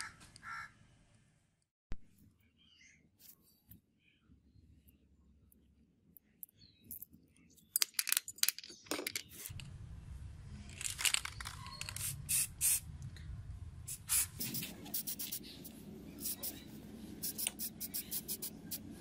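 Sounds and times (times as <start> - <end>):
spray paint can hissing: 11.4 - 12.8, 13.9 - 16.6, 17.2 - 18.9.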